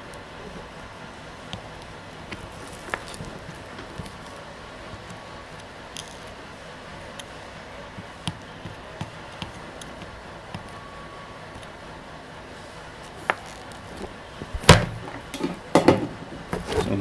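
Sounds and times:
knocks on workbench: 14.7s - 16.2s.

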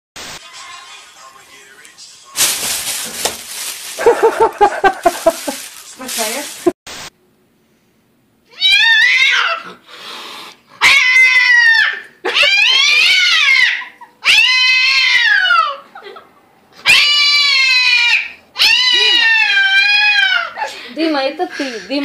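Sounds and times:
cat yowling: 8.5s - 9.8s, 10.8s - 15.8s, 16.8s - 20.7s.

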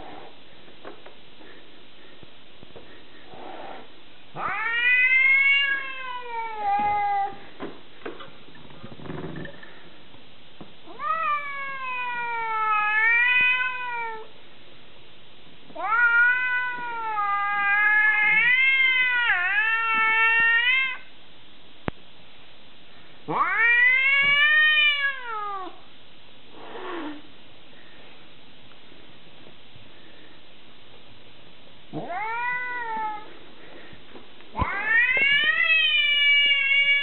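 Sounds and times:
cat yowling: 4.4s - 7.4s, 15.8s - 21.1s, 23.3s - 25.8s, 32.0s - 33.3s.

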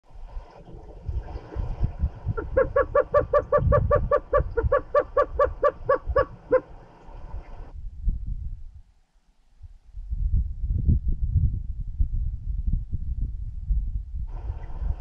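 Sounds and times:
wind rumble on microphone: 0.1s - 15.0s
bird calling rapid even notes: 2.3s - 7.7s.

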